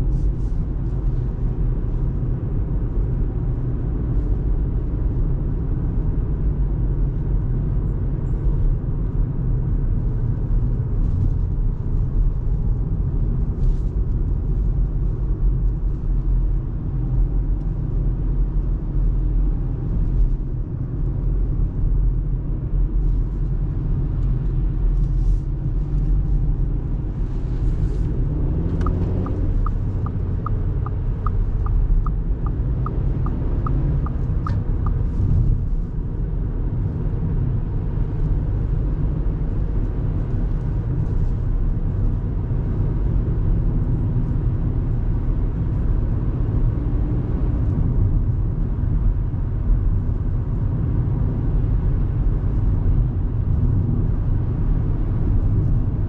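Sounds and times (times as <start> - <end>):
car road and engine rumble: 0.0 - 56.0
light ticks: 28.8 - 35.2.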